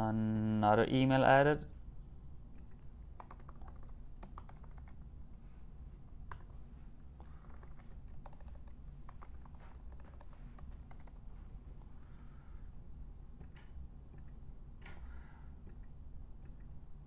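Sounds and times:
low steady hum: 0:00.0 - 0:17.0
keyboard typing: 0:02.5 - 0:05.0, 0:06.2 - 0:11.3, 0:13.4 - 0:14.4, 0:15.6 - 0:16.8.

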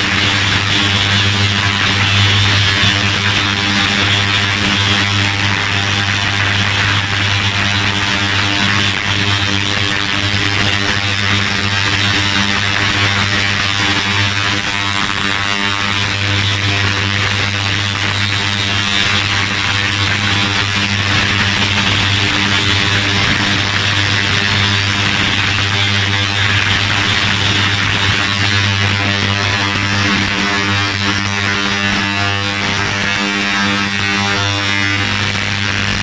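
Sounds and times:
ultrasonic cleaner buzzing hum: 0:00.0 - 0:36.0.

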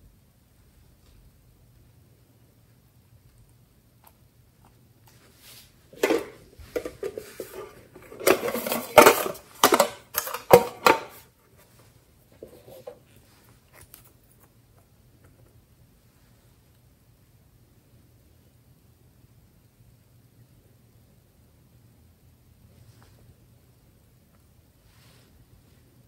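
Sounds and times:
tin box clicks and rattles: 0:06.0 - 0:11.2.

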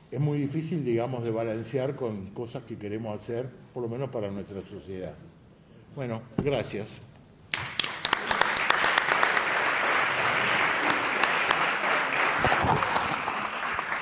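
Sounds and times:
audience applauding: 0:07.5 - 0:14.0.

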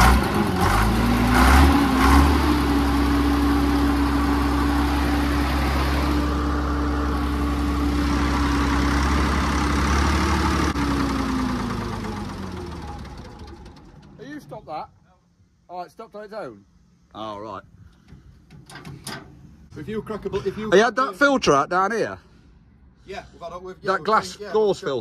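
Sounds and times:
diesel engine idling and stalling: 0:00.0 - 0:15.7.

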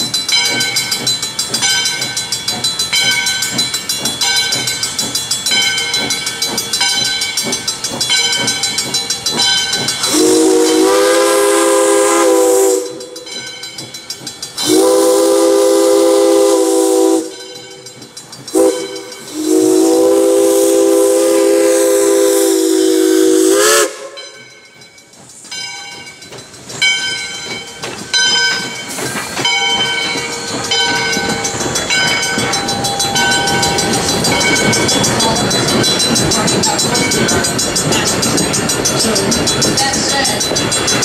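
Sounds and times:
train wheels clicking over rails: 0:00.0 - 0:41.0
steam locomotive whistle blasts: 0:10.0 - 0:13.4, 0:14.6 - 0:17.7, 0:18.5 - 0:24.4
bell ringing: 0:24.2 - 0:41.0.

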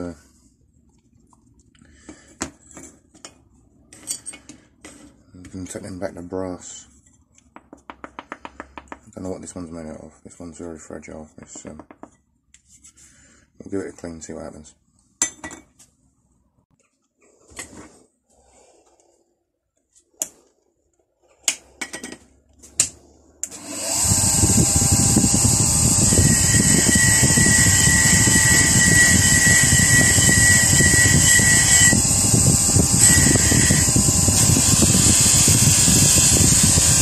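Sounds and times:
bench grinder running: 0:23.5 - 0:37.0.

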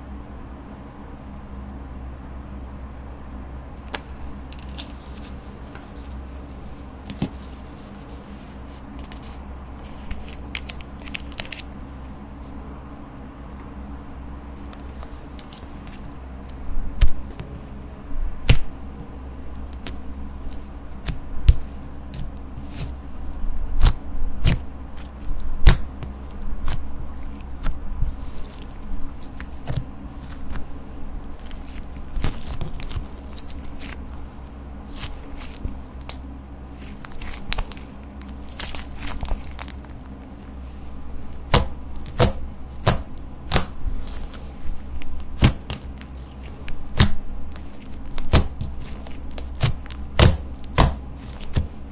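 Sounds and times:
steady low hum: 0:00.0 - 0:51.9
slime popping and crackling: 0:31.3 - 0:40.4, 0:41.3 - 0:51.7.

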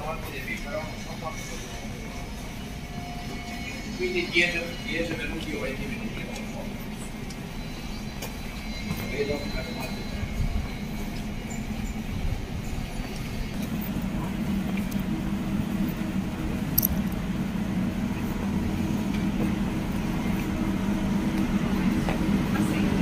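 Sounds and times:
street noise: 0:00.0 - 0:23.0
tram humming at a stop: 0:00.0 - 0:23.0.

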